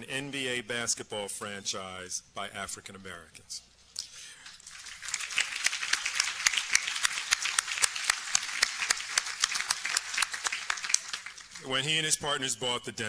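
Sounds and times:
audience applauding: 0:04.5 - 0:12.1.

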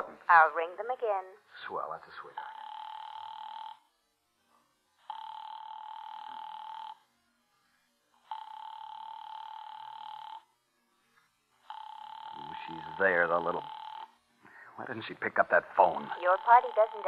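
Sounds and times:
telephone ringing tone: 0:02.4 - 0:03.9, 0:05.0 - 0:07.0, 0:08.2 - 0:10.5, 0:11.6 - 0:14.2, 0:16.0 - 0:17.0.

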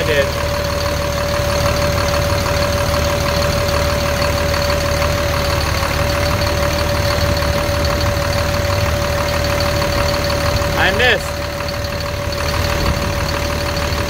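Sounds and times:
forklift engine idling: 0:00.0 - 0:14.0.

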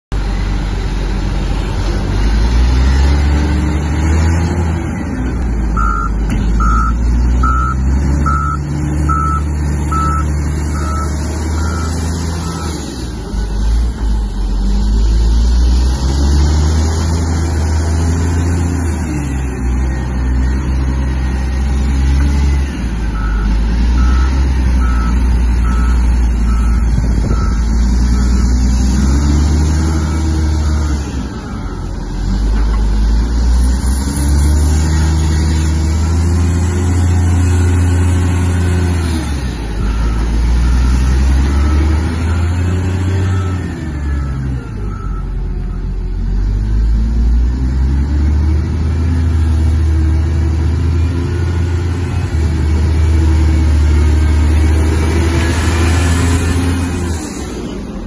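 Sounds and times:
diesel engine revving: 0:00.1 - 0:58.0
reverse alarm beeping: 0:05.8 - 0:12.8.

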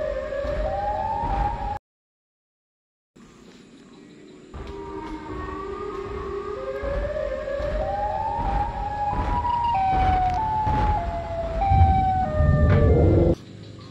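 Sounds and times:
siren wail climbing in steps: 0:00.0 - 0:01.8, 0:04.6 - 0:13.4
low rumble: 0:04.6 - 0:13.4.

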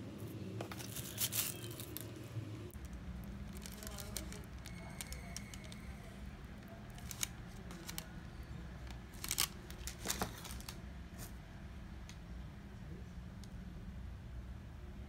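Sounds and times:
low steady hum: 0:00.0 - 0:15.0
plastic bag crinkling: 0:00.7 - 0:02.2, 0:02.8 - 0:05.9, 0:06.6 - 0:10.8.

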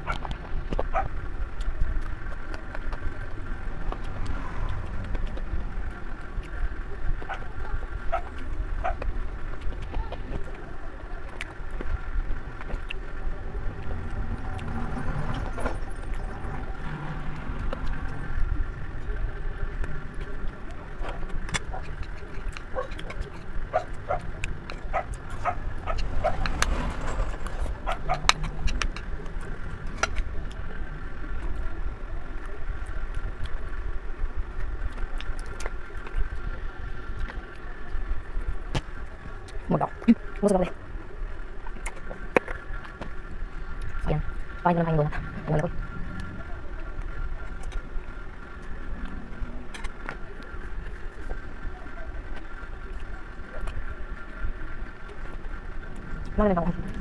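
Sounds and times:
person chewing food: 0:00.0 - 0:26.7, 0:34.5 - 0:37.8
steady low rumble: 0:00.0 - 0:57.0.

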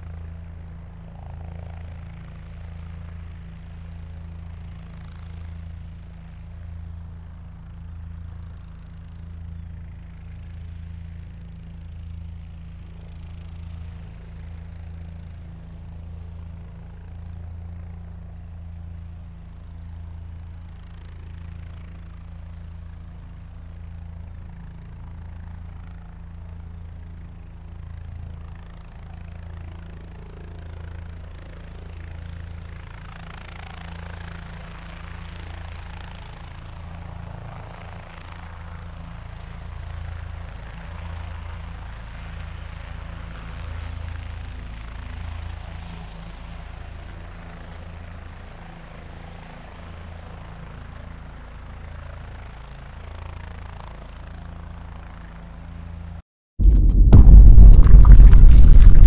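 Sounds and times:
rushing helicopter engine noise: 0:00.0 - 0:22.7, 0:50.2 - 0:56.0, 0:56.6 - 0:59.0
helicopter rotor beat: 0:00.1 - 0:19.0, 0:52.6 - 0:55.2, 0:56.6 - 0:59.0.

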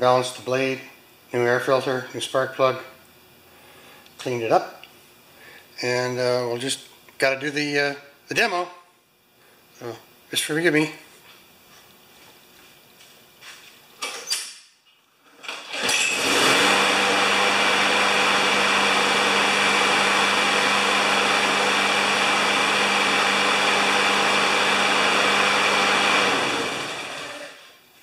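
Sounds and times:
lawn mower engine running: 0:15.3 - 0:27.6.

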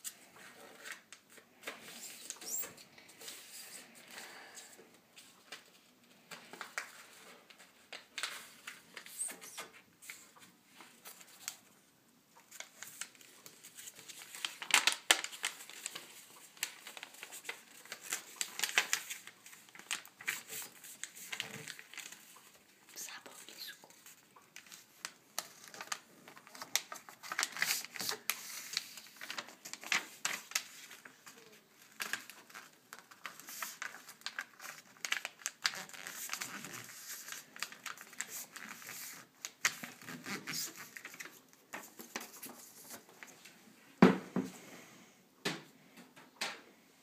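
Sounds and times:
paper crinkling and rustling: 0:00.0 - 0:11.8, 0:12.4 - 0:43.6.

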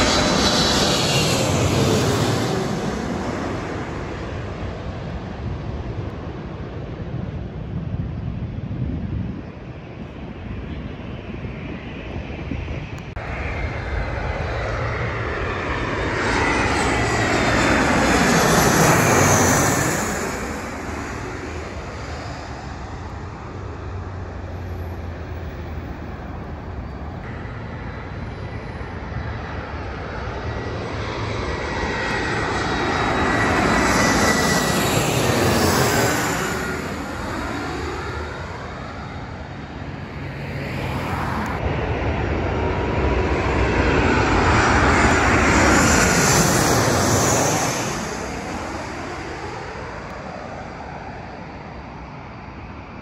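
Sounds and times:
jet airliners passing overhead: 0:00.0 - 0:53.0.

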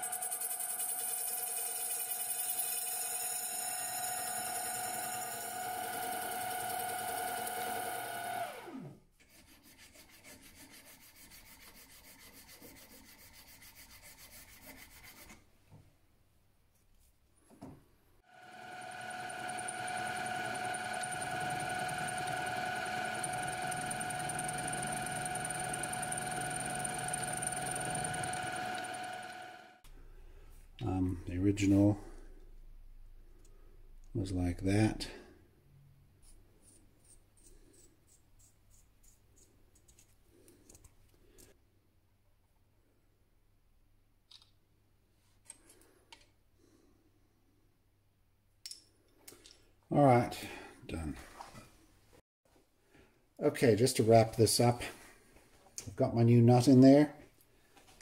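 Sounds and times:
milling machine spindle whine: 0:00.0 - 0:08.9, 0:18.4 - 0:29.8.

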